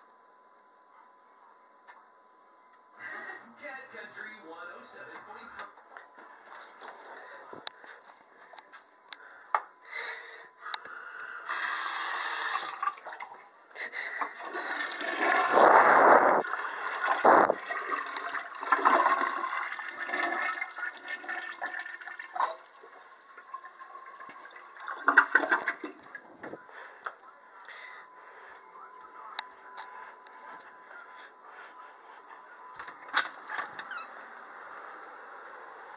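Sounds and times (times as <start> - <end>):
toilet flushing: 11.5 - 13.4, 14.2 - 15.6, 16.4 - 26.2.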